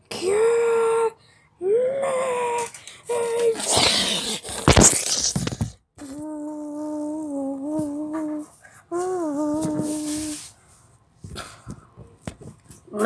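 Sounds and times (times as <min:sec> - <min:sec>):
person humming held notes: 0:06.0 - 0:10.6.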